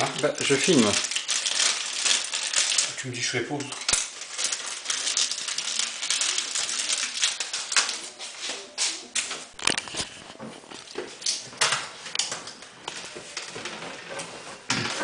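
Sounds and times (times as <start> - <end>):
rustling and scraping: 4.3 - 15.0.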